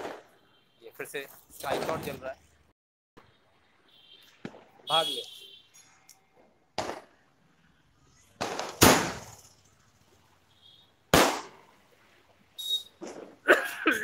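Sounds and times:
firework bangs: 0.0 - 0.4, 6.8 - 7.2, 8.4 - 9.5, 11.1 - 11.8
faint firework crackle: 8.2 - 9.8.

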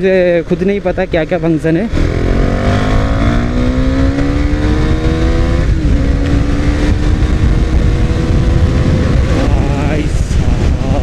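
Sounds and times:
motorcycle engine accelerating: 1.9 - 11.0.

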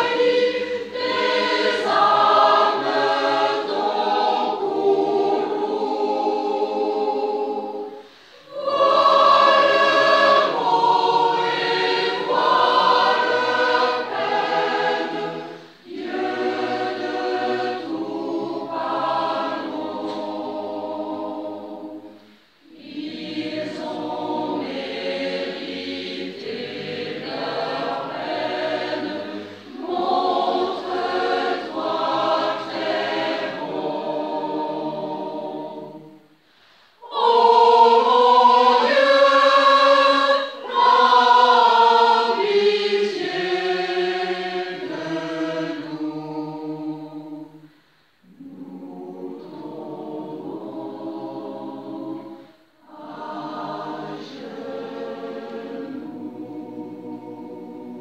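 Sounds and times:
women's choir singing: 0.0 - 58.0.

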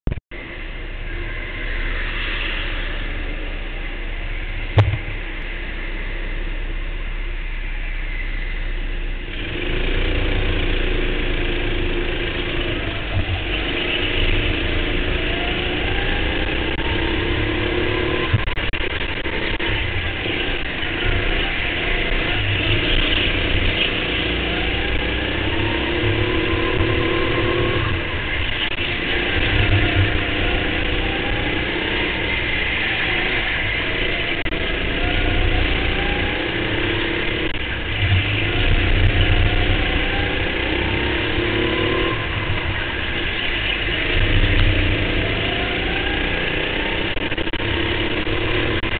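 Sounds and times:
sharp knock: 4.8 - 5.1
go-kart engine revving: 9.2 - 48.9.

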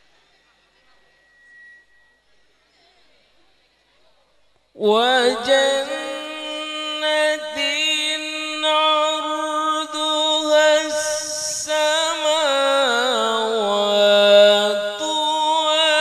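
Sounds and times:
man chanting through microphone: 4.8 - 16.0.

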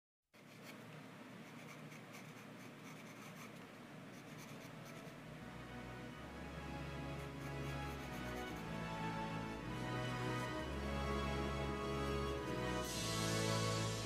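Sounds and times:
pencil scratching on paper: 0.4 - 5.2, 7.1 - 8.7
low steady hum: 0.4 - 14.0.

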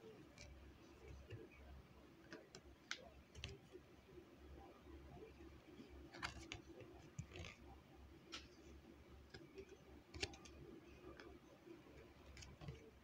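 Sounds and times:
low room hum: 0.0 - 13.0
cards tapping and clicking: 6.1 - 7.6, 10.1 - 10.6.

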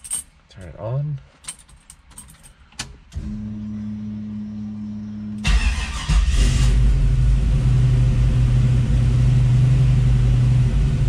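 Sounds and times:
engine cranking and idling: 5.4 - 8.9.

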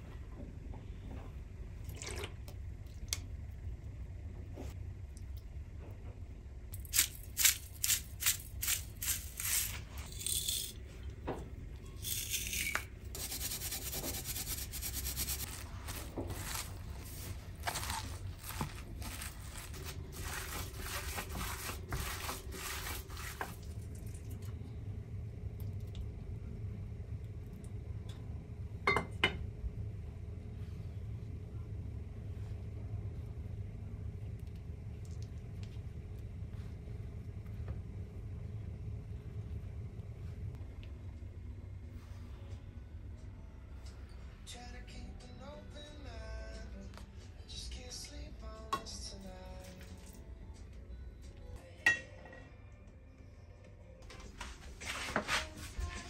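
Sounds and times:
low steady hum: 0.0 - 56.0
wet squishing of kneading: 15.4 - 24.5.

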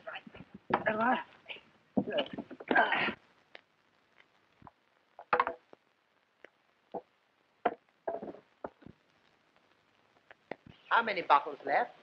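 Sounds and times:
irregular knocks and thumps: 0.1 - 1.1, 1.9 - 3.2, 4.6 - 5.8, 6.9 - 9.2.

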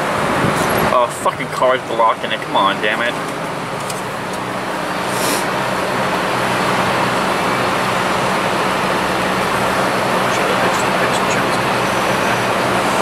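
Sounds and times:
traffic noise with engine hum: 0.0 - 13.0
short hiss: 5.1 - 5.5.

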